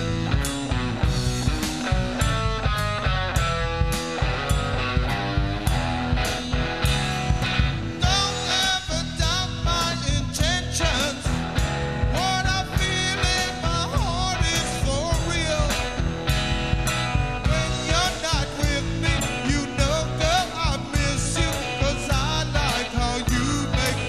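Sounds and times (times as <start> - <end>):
drum kit steady beat: 0.0 - 24.0
electric guitar: 0.0 - 24.0
man singing lead: 8.0 - 16.2, 17.3 - 24.0.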